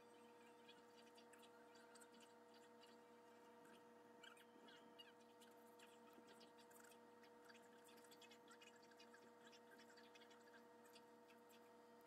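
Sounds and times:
faint electrical hum: 0:00.0 - 0:12.0.

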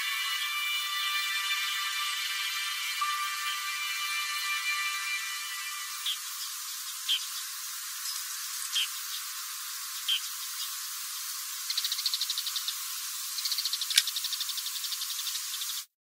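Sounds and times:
music cue: 0:00.0 - 0:07.2
short high chirps: 0:00.0 - 0:08.9
fast chirring trill: 0:00.0 - 0:10.8.

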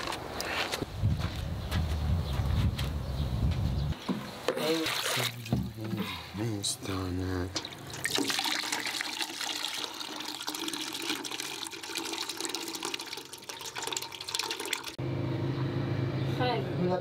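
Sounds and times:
hand sloshing water in basin: 0:04.5 - 0:05.7.

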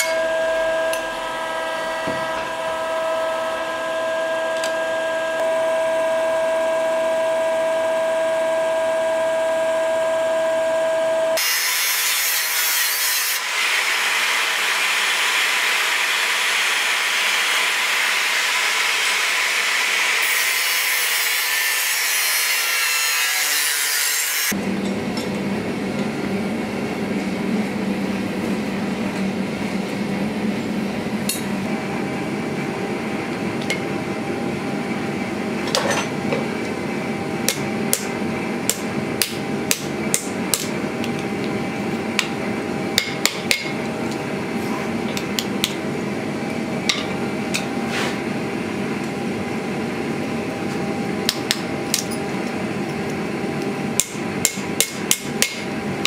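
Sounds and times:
hammer striking steel on anvil: 0:00.0 - 0:01.1, 0:37.4 - 0:40.8, 0:43.0 - 0:43.8, 0:54.0 - 0:55.7
gas forge roaring: 0:00.0 - 0:11.4, 0:13.3 - 0:21.9, 0:24.5 - 0:56.0.

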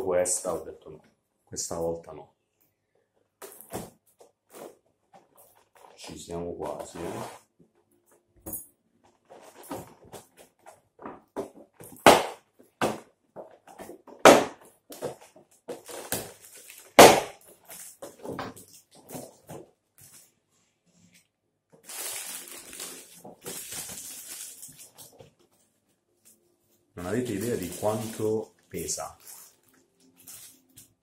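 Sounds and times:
plastic wrapping rustling: 0:09.0 - 0:10.8, 0:13.5 - 0:20.4, 0:21.8 - 0:31.0
plastic packaging crackling: 0:15.7 - 0:19.0, 0:21.8 - 0:25.5, 0:27.0 - 0:31.0.

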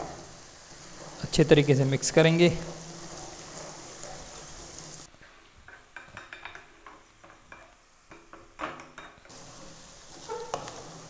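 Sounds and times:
faint frying sizzle: 0:00.0 - 0:11.0
wooden spatula scraping a pot: 0:02.6 - 0:11.0.

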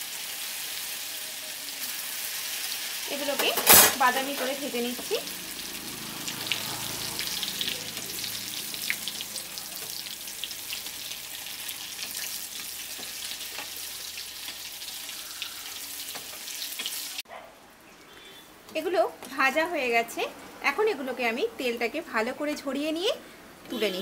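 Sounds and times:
deep-frying sizzle: 0:00.0 - 0:17.2.

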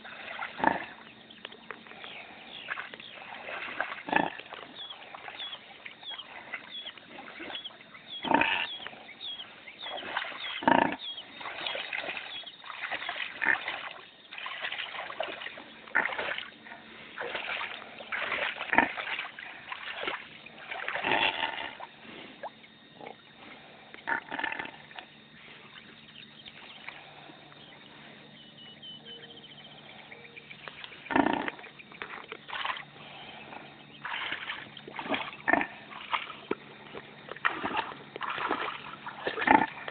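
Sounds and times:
pig making noises: 0:00.0 - 0:01.1, 0:03.1 - 0:12.3, 0:13.0 - 0:14.0, 0:15.9 - 0:16.8, 0:18.1 - 0:19.9, 0:20.9 - 0:21.9, 0:24.0 - 0:24.8, 0:31.1 - 0:32.8, 0:35.0 - 0:36.2, 0:39.1 - 0:39.9
water splashing: 0:00.0 - 0:01.5, 0:02.6 - 0:08.0, 0:09.8 - 0:10.7, 0:11.3 - 0:22.6, 0:31.6 - 0:33.2, 0:33.9 - 0:39.9.

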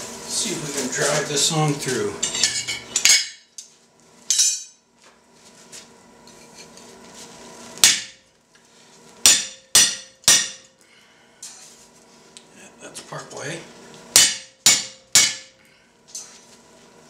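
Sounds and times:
metallic ring: 0:04.3 - 0:04.8
hammer striking chisel on steel: 0:07.8 - 0:08.2, 0:09.2 - 0:10.7, 0:14.1 - 0:15.6.

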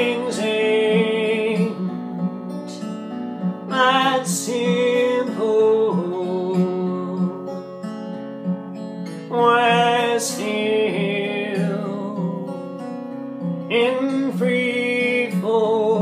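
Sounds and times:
man singing: 0:00.0 - 0:02.0, 0:02.7 - 0:03.0, 0:03.6 - 0:07.6, 0:09.2 - 0:12.6, 0:13.7 - 0:16.0
acoustic guitar playing: 0:00.0 - 0:16.0.

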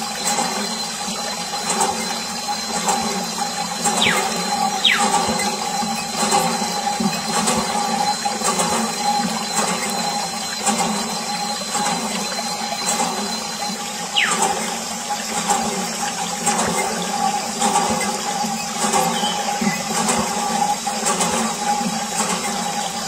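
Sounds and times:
steady hum: 0:02.7 - 0:09.4, 0:10.1 - 0:16.0.

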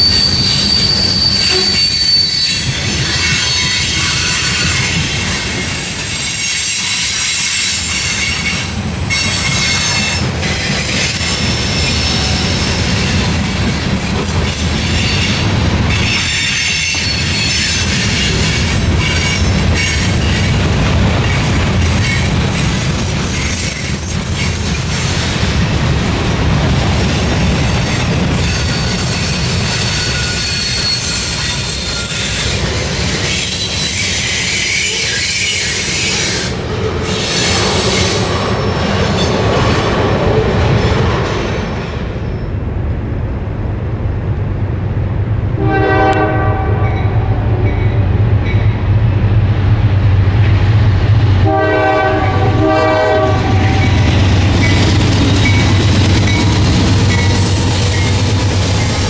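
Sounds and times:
high-pitched wheel squeal: 0:00.0 - 0:20.5, 0:21.2 - 0:25.5, 0:27.0 - 0:32.6, 0:33.2 - 0:39.8, 0:54.6 - 0:59.0
train wheels rumbling on rails: 0:00.0 - 0:59.0.

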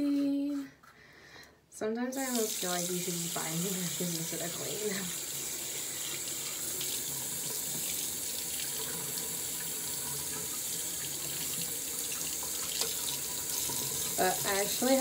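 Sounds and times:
tap running into sink: 0:06.8 - 0:14.1.

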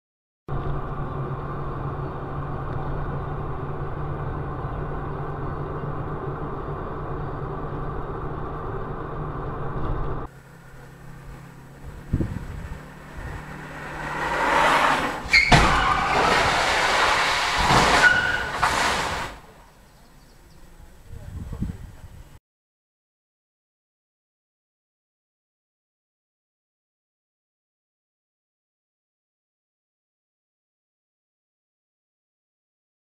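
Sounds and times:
street traffic: 0:00.5 - 0:22.4
vehicle engine and tyre noise: 0:00.5 - 0:22.4
loud rushing noise: 0:11.1 - 0:19.5.

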